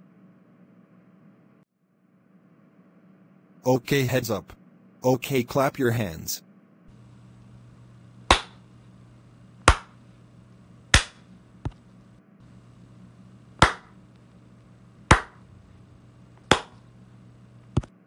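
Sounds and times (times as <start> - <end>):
sharp hand claps: 8.3 - 8.6, 9.7 - 9.9, 10.9 - 11.2, 13.6 - 13.9, 15.1 - 15.4, 16.5 - 16.8.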